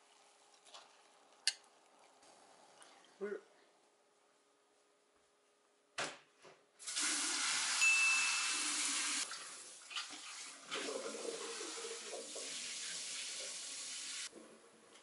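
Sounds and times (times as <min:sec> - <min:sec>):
tap water running into sink: 0:08.4 - 0:14.3.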